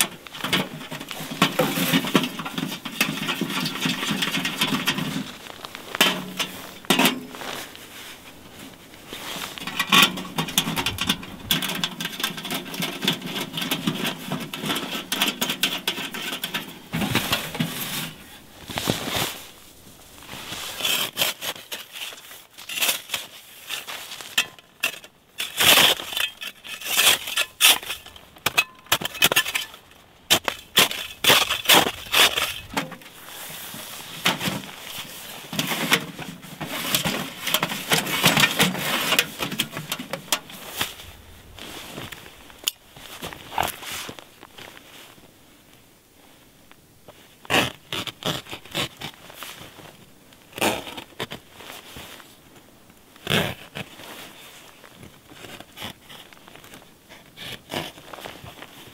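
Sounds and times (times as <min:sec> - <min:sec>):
sheet metal clinking and scraping: 0:00.0 - 0:05.4, 0:09.4 - 0:18.2, 0:34.0 - 0:40.7.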